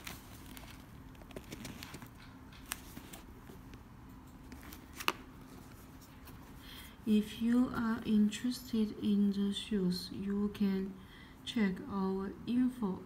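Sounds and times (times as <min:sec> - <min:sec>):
sneaker rustling and clicking: 0:00.0 - 0:03.8
faint steady hum: 0:00.0 - 0:13.0.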